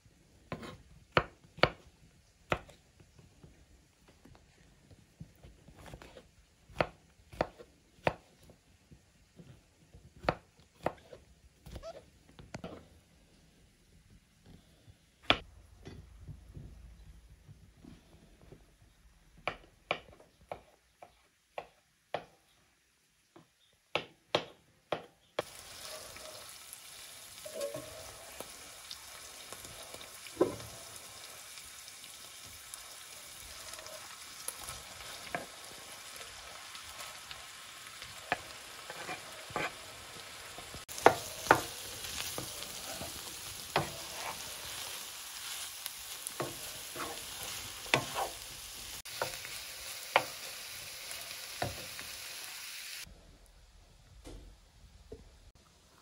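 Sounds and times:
knife chopping on wooden board: 0.5 - 1.8, 5.8 - 8.3, 10.2 - 11.8, 41.0 - 41.7, 43.7 - 44.4, 47.9 - 48.4
wooden spatula knocking and scraping: 0.5 - 1.9, 30.3 - 30.8, 33.7 - 35.7, 38.1 - 39.9, 40.8 - 49.4, 50.1 - 50.4
chicken sizzling in frying pan: 25.4 - 53.1.

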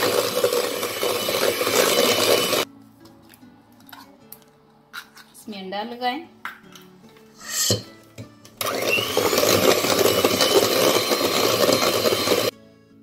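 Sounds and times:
beaters churning in steel bowl: 0.0 - 2.6, 8.6 - 12.5
electric hand mixer whining: 0.0 - 2.6, 8.6 - 12.5.

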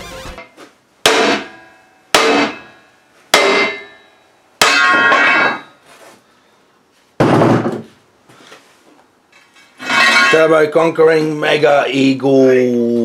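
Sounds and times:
steel plate clanging: 1.1 - 5.8, 9.8 - 10.7.

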